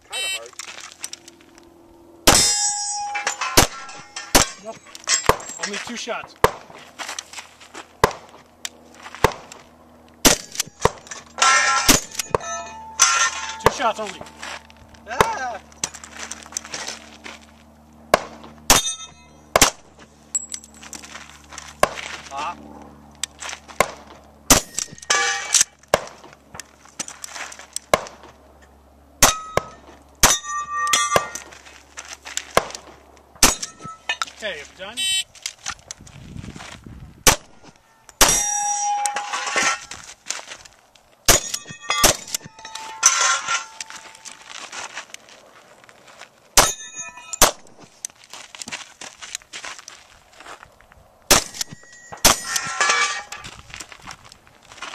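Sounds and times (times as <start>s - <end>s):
metallic clang: 2.3s - 5.8s, 10.3s - 14.4s, 18.7s - 19.7s, 24.5s - 25.7s, 29.2s - 31.6s, 33.4s - 34.3s, 37.3s - 40.0s, 41.3s - 44.4s, 46.6s - 47.6s, 51.3s - 53.6s
shotgun shots: 10.2s - 12.4s, 18.1s - 19.9s, 23.8s - 26.2s, 37.2s - 37.6s, 51.3s - 53.0s
pistol shots: 23.8s - 26.2s, 51.3s - 52.6s
shotgun firing: 37.2s - 37.6s, 51.3s - 52.6s.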